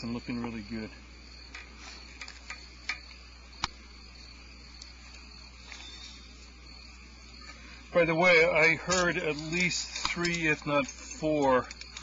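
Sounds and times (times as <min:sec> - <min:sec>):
crickets chirping: 0:00.0 - 0:12.0
low steady hum: 0:00.0 - 0:12.0
sharp clicks: 0:08.9 - 0:12.0.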